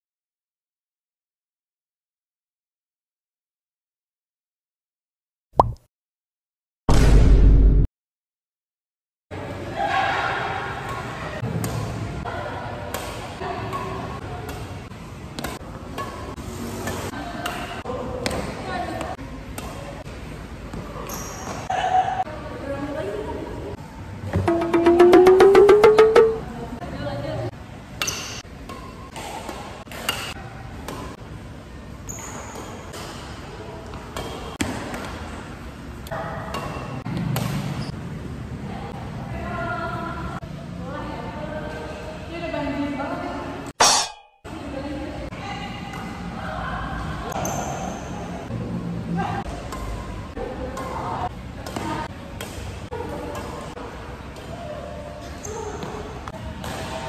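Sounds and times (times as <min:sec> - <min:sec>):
racket hitting shuttlecock: 0:24.4 - 0:26.4.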